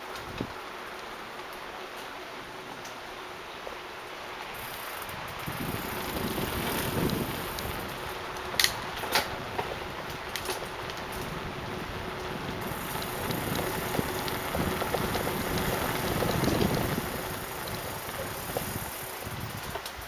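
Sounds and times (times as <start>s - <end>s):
bicycle tyre and wind rush: 0.0s - 20.0s
bike rattles: 4.6s - 20.0s.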